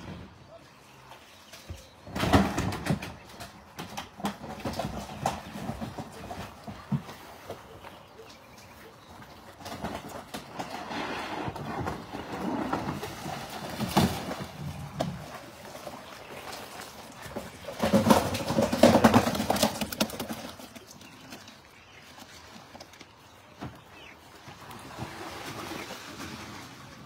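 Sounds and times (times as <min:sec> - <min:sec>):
plastic tub knocking and clattering: 0:01.7 - 0:07.8, 0:11.5 - 0:15.4, 0:17.3 - 0:20.8
fish flopping and slapping: 0:11.8 - 0:23.2.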